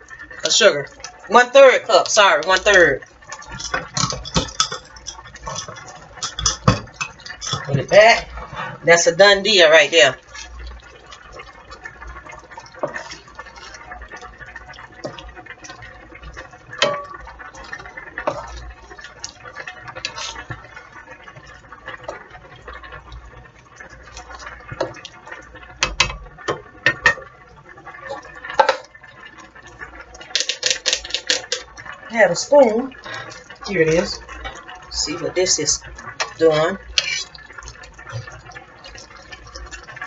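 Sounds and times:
sauce squelching and bubbling: 0.0s - 40.0s
spoon tapping and scraping pan: 2.0s - 7.9s, 12.6s - 14.2s, 14.8s - 22.9s, 24.1s - 27.3s, 28.1s - 28.9s, 30.2s - 31.8s, 35.5s - 39.8s
sharp clicks and knocks: 30.3s - 31.7s.

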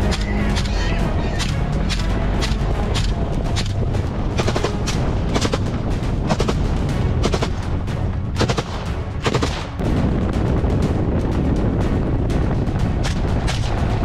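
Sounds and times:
vehicle rumbling over rough ground: 0.0s - 14.0s
rifle shots: 8.4s - 9.8s.

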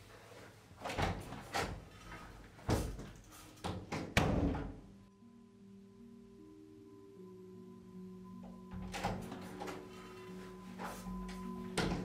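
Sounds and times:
soft music of low notes: 0.0s - 12.0s
wooden door knocks and thuds: 3.7s - 4.8s.

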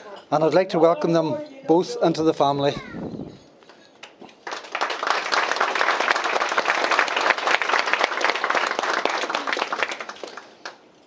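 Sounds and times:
audience applauding: 4.4s - 10.9s.

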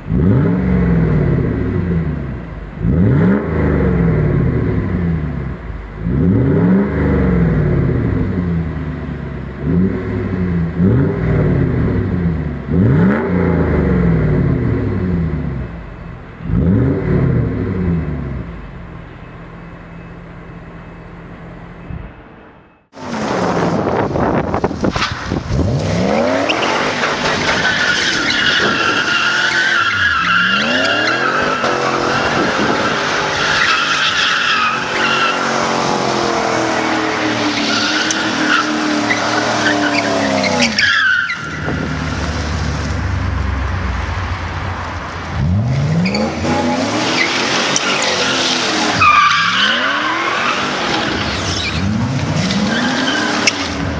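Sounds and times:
car engine revving hard: 0.0s - 5.3s, 6.0s - 8.7s, 9.6s - 15.4s, 25.4s - 41.1s
tyres squealing: 26.1s - 41.9s, 46.0s - 53.8s.

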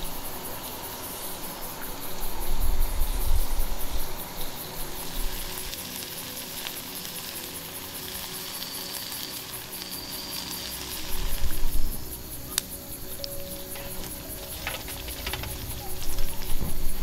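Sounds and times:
wind rumbling on microphone: 0.0s - 5.8s, 11.0s - 17.0s
campfire crackling: 0.0s - 17.0s
meat sizzling in a skillet: 0.0s - 17.0s.

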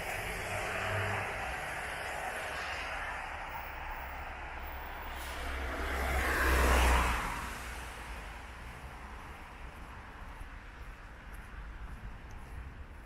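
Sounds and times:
car tyres hissing on wet road: 0.0s - 8.1s.

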